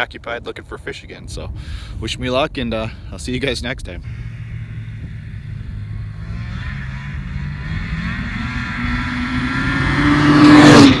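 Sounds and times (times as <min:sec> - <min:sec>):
snowmobile engine speeding up: 0:04.0 - 0:11.0.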